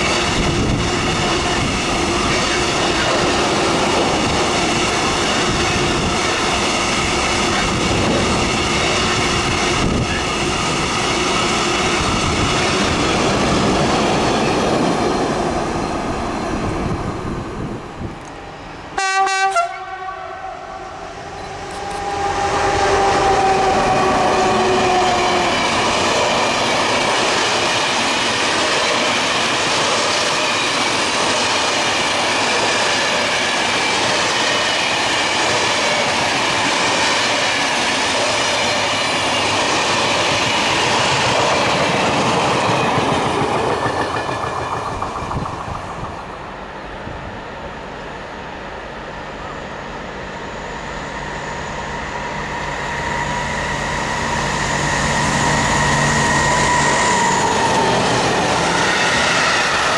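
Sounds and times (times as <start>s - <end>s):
droning locomotive tone: 0.0s - 59.9s
passenger coaches rolling: 0.0s - 59.9s
locomotive horn blast: 19.0s - 25.4s.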